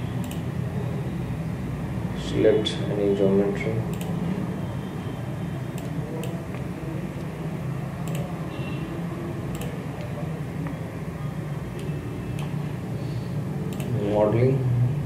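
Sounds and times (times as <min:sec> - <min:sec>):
computer mouse clicking: 0:00.2 - 0:00.5, 0:03.9 - 0:04.2, 0:05.7 - 0:07.3, 0:08.0 - 0:08.3, 0:09.5 - 0:10.2, 0:13.7 - 0:14.0.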